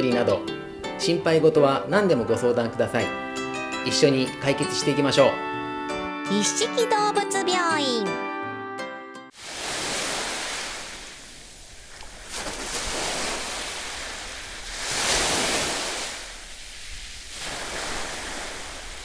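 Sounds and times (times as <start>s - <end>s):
sea waves washing onto beach: 9.4s - 19.0s.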